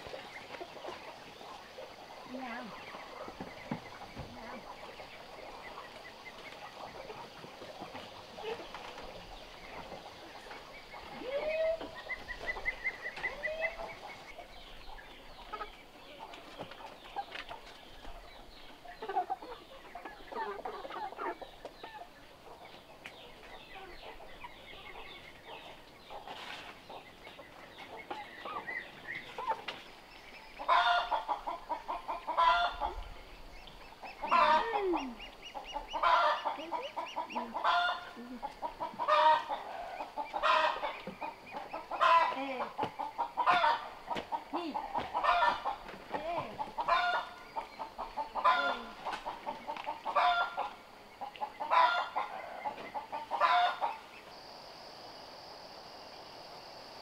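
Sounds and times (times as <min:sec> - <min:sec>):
chickens clucking: 0:00.0 - 0:57.0
hen cackling loudly: 0:30.6 - 0:33.0, 0:34.1 - 0:50.8, 0:51.6 - 0:54.0.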